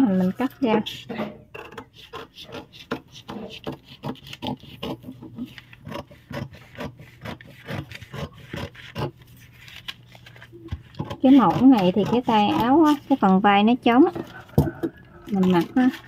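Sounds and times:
scissors snipping paper: 0:02.5 - 0:13.2
paper rustling: 0:08.7 - 0:10.9.

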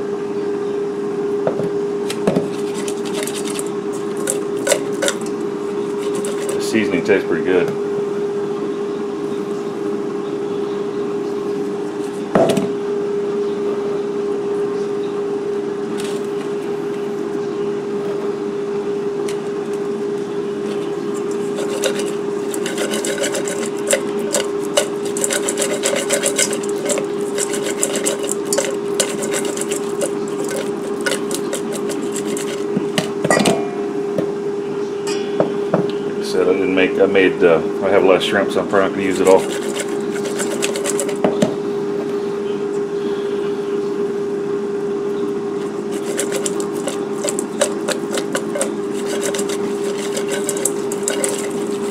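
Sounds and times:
air fryer humming: 0:00.0 - 0:51.9
hands rubbing shrimp in metal bowl: 0:02.4 - 0:07.2, 0:20.6 - 0:33.2, 0:39.0 - 0:41.2, 0:45.6 - 0:51.9.

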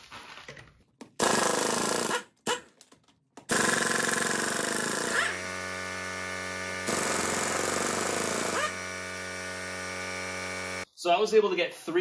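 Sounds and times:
impact wrench hammering: 0:03.4 - 0:10.3
impact wrench spinning freely: 0:03.5 - 0:10.8.

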